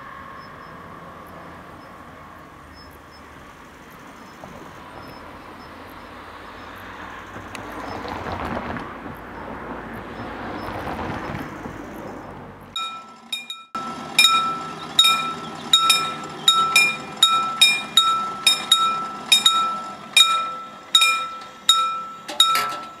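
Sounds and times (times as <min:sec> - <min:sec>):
level-crossing warning bell ringing: 0:12.8 - 0:23.0.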